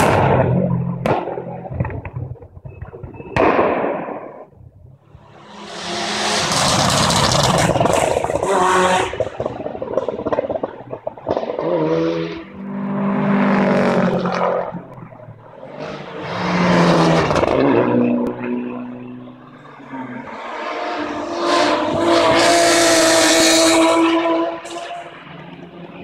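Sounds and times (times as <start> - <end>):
rush of noise: 5.1 - 12.3
rally cars passing at speed: 5.1 - 26.0.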